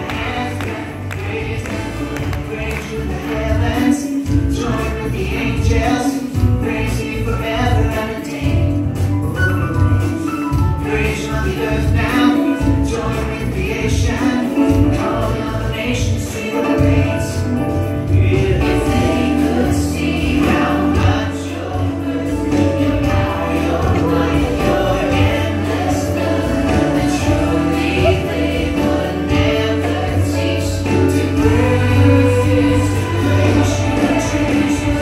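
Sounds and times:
choir singing gospel: 0.0s - 35.0s
steady beat: 18.1s - 35.0s.

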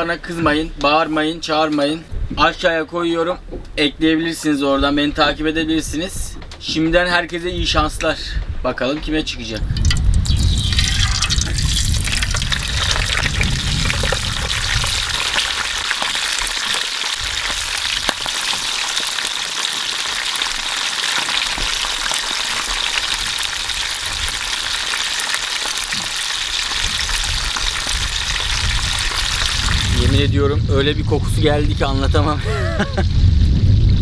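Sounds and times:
low rumble: 9.2s - 16.4s, 26.9s - 34.0s
fish sizzling in hot oil: 9.8s - 30.1s.

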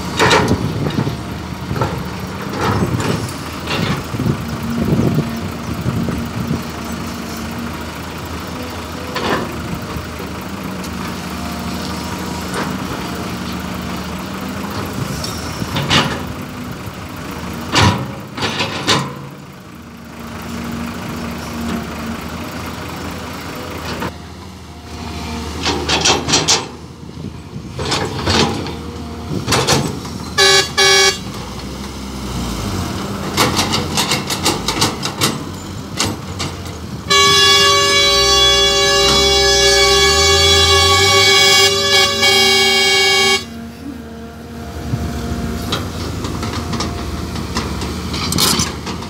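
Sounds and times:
excavator diesel engine working: 0.0s - 49.0s
horn toots: 30.4s - 31.4s, 37.0s - 44.0s.

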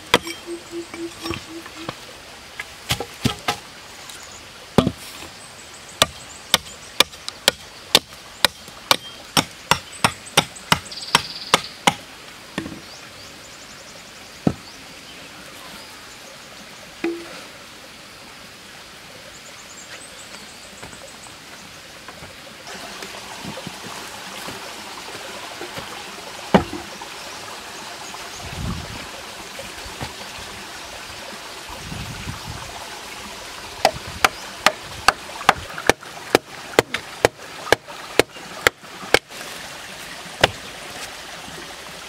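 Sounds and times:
hatchet chopping wood: 2.9s - 3.6s, 4.8s - 5.0s, 6.0s - 12.0s, 33.8s - 39.3s, 40.4s - 40.6s.

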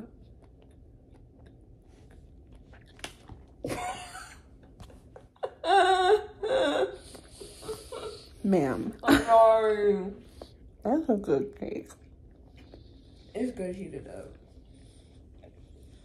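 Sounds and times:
chewing: 0.0s - 3.7s, 11.8s - 16.0s.

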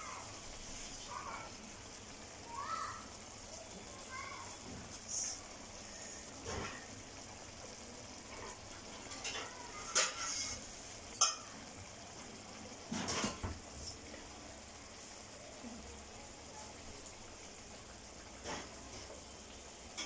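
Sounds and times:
gravy simmering: 0.0s - 20.0s
utensils clinking against pan: 8.4s - 11.6s.

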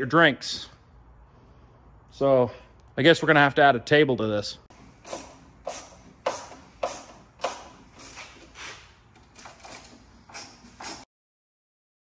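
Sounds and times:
hand tool clicking on metal: 5.0s - 8.6s.

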